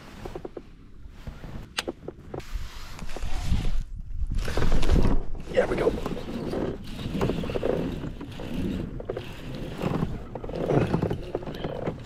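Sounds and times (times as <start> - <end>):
water lapping against kayak hull: 4.4 - 12.0.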